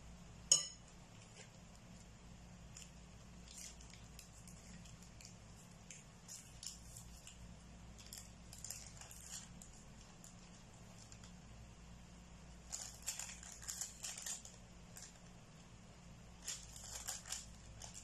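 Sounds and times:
low steady hum: 0.0 - 18.0
fork pressing against plate: 0.5 - 0.8
soft pastry wrapper rustles: 1.0 - 11.6, 12.4 - 18.0.

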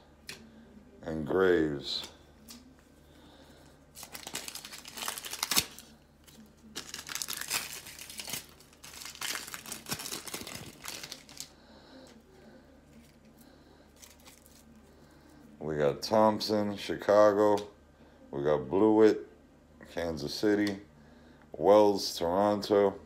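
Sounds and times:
wrapper crinkling in hands: 3.9 - 11.6, 12.9 - 14.8.

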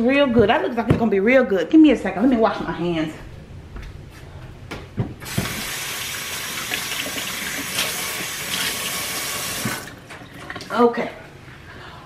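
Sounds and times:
faucet running: 5.2 - 10.0.

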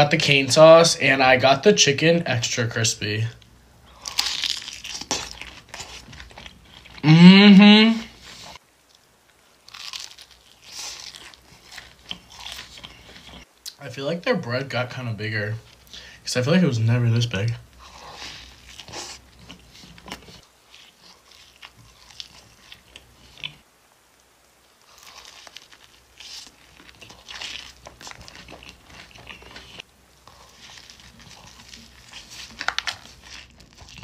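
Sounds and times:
crunchy chewing: 3.8 - 7.1, 8.1 - 13.5, 17.7 - 23.7, 24.8 - 34.0
biting into crispy food: 3.9 - 7.1, 9.6 - 13.5, 17.8 - 23.6, 24.8 - 34.0.

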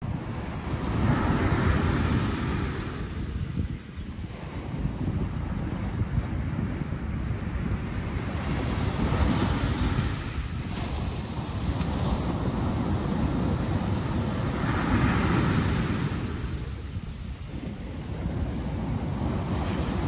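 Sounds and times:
waves washing up shingle beach: 0.0 - 20.0
wind rumble on microphone: 0.0 - 20.0.

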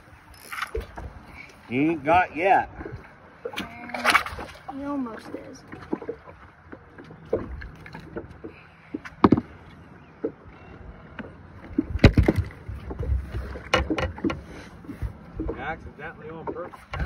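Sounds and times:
water against hull: 0.0 - 17.0
wind: 0.0 - 17.0
knocks and thumps on boat deck: 5.7 - 10.5, 11.1 - 17.0.

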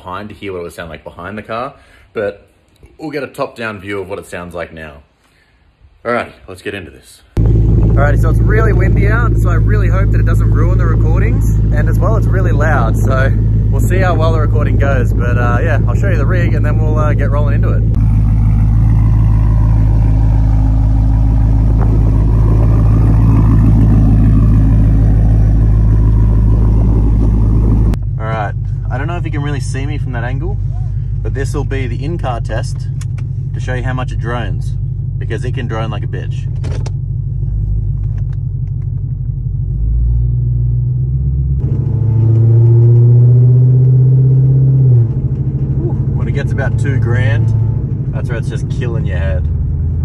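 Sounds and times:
car engine idling deep: 7.4 - 41.8, 44.8 - 50.0.

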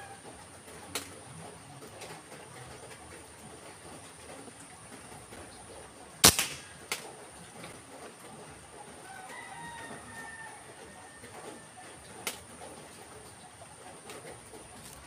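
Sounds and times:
air rifle shot crack: 6.2 - 7.1.

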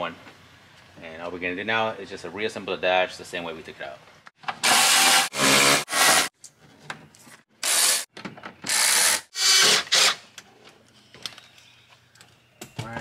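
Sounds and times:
cordless impact driver bursts: 4.6 - 6.3, 7.6 - 8.0, 8.7 - 10.2.

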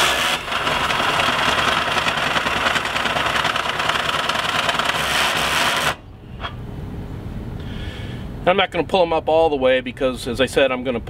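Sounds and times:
cordless drill running: 0.0 - 6.0.

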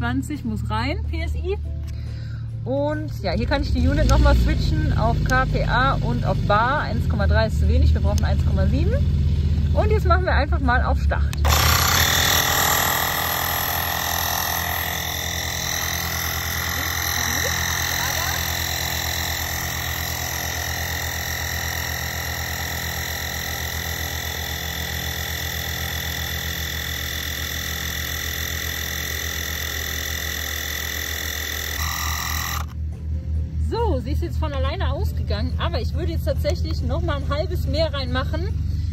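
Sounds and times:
tyre inflator compressor pulsing: 11.3 - 32.8.

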